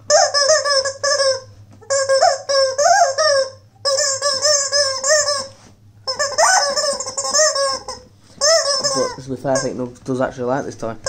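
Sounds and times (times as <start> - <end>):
toy sound box high-pitched clip: 0.1 - 5.5, 6.1 - 9.7.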